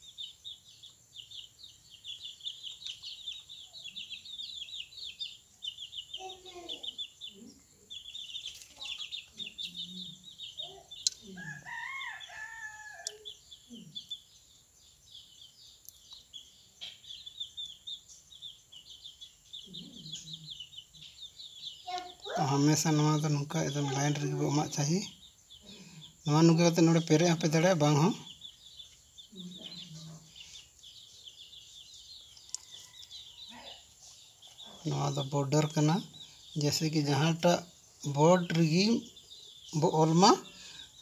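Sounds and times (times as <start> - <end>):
high-pitched chirping: 0.0 - 41.0
rooster crowing: 11.3 - 13.3.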